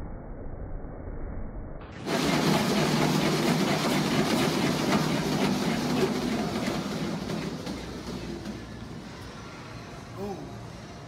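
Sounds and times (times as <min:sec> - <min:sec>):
treadmill rolling rumble: 0:01.9 - 0:11.0
fast footfalls on treadmill: 0:02.0 - 0:09.0.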